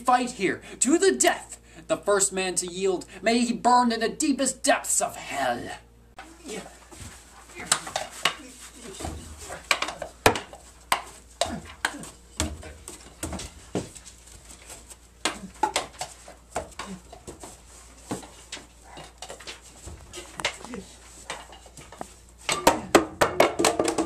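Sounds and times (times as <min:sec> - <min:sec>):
wooden sticks clacking: 0:07.5 - 0:24.0.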